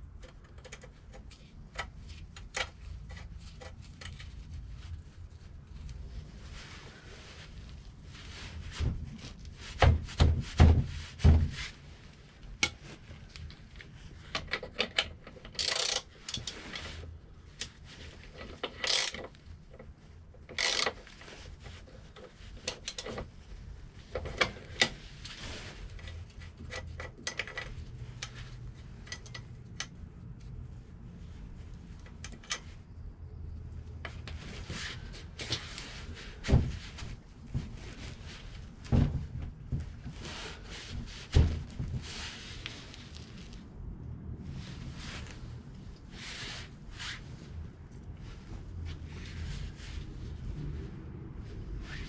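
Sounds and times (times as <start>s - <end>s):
tools and metal parts clanking: 24.1s - 25.4s.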